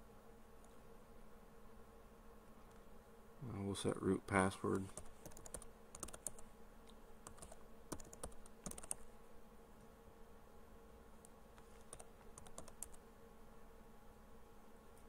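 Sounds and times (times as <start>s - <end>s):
low steady hum: 0.0s - 15.0s
keyboard typing: 4.9s - 6.4s, 7.2s - 9.1s, 11.7s - 13.0s.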